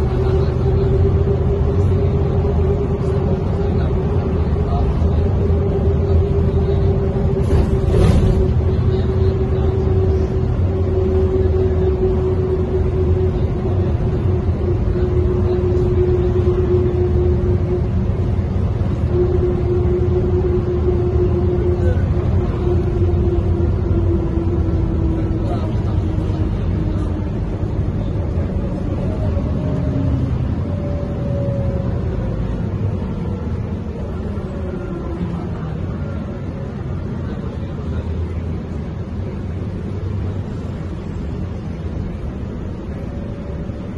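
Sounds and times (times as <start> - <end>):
bus engine rumble: 0.0 - 43.9
road noise: 0.0 - 43.9.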